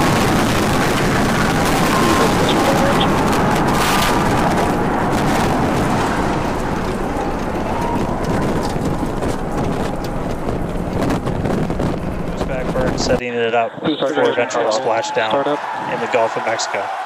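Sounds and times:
rocket engine rumble with crackle: 0.0 - 13.2.

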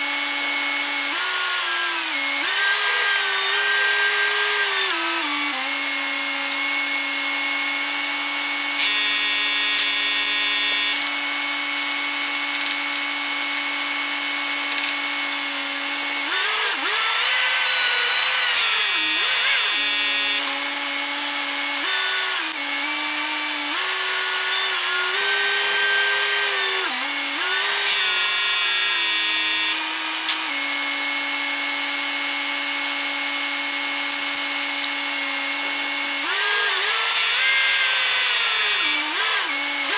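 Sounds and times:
crane engine and hydraulics whine: 0.0 - 23.2, 27.4 - 29.8.

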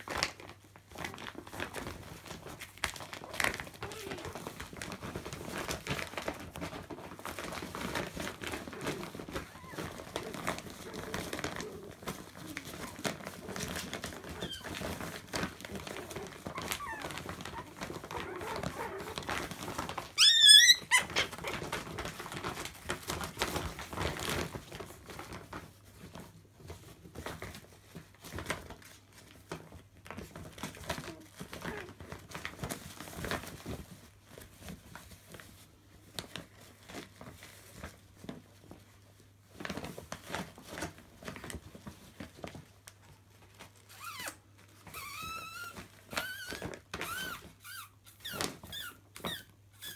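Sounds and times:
plastic bag crinkling: 0.0 - 49.9
puppy yelp: 8.8 - 11.6, 12.3 - 15.2, 15.8 - 21.8, 43.9 - 49.9.

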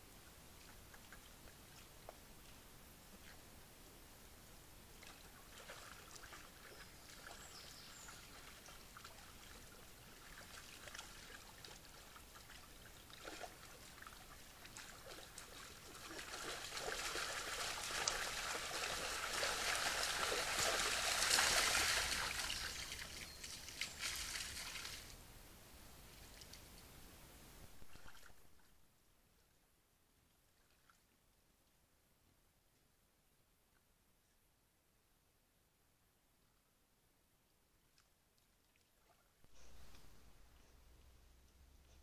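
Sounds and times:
water splashing and trickling: 5.0 - 25.2, 27.8 - 28.7.

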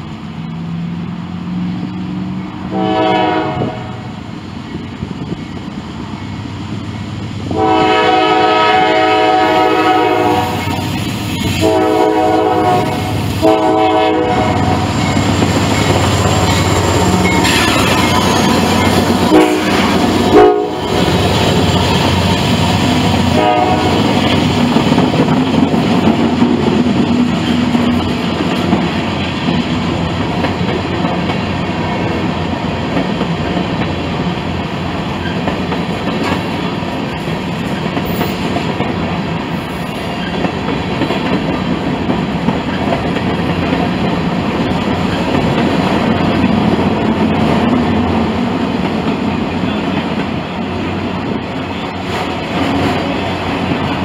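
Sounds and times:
freight train wheels clacking on rails: 0.0 - 54.0
locomotive horn: 2.7 - 4.1, 7.5 - 10.8, 11.4 - 14.9, 17.4 - 21.0, 23.3 - 24.2.

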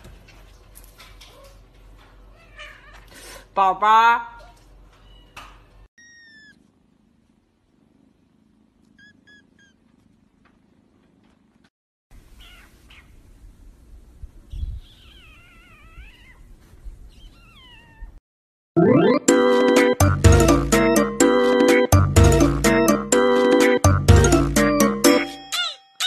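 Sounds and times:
puppy whining: 4.4 - 6.7, 8.9 - 9.9, 14.7 - 16.5, 17.1 - 18.2.

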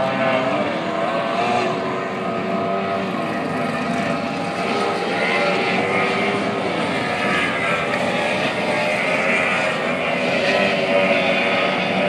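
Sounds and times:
racing boat engines droning: 0.0 - 12.0.

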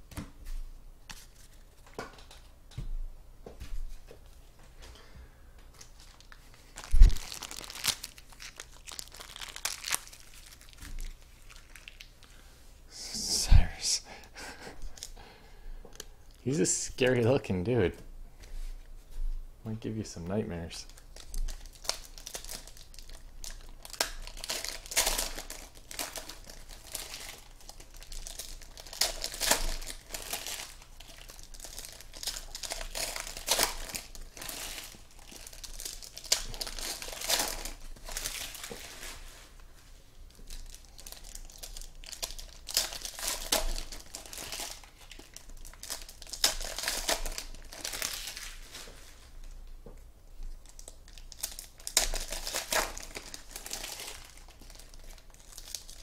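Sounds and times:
foil wrappers crinkling: 5.7 - 12.4, 20.6 - 49.7, 50.4 - 56.0.

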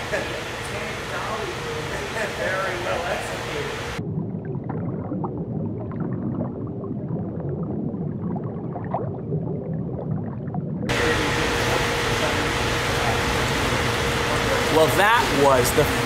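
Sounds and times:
underwater rumble of water: 3.8 - 12.5.

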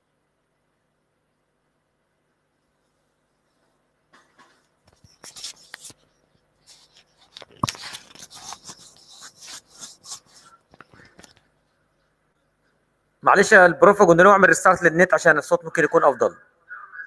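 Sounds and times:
scratchy crackling noise: 4.2 - 11.6.

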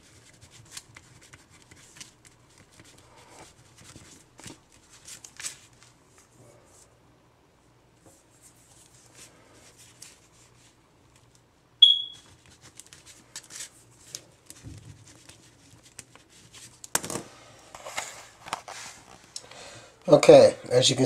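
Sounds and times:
paper rustling: 0.0 - 6.3, 12.2 - 17.1
short high electronic beep: 11.8 - 12.2.

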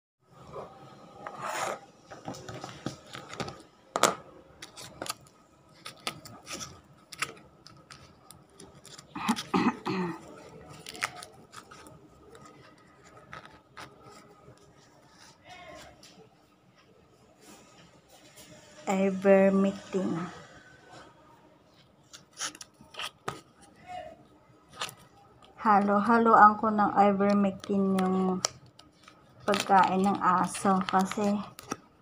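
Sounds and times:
foil sachet crinkling: 10.2 - 14.8, 24.8 - 31.9.

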